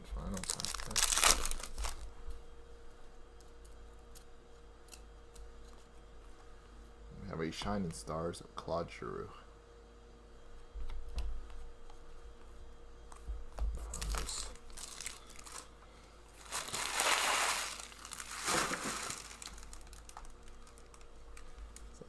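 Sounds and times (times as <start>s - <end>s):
plastic wrapping crinkling: 0.2s - 2.1s, 14.0s - 15.7s, 16.3s - 22.0s.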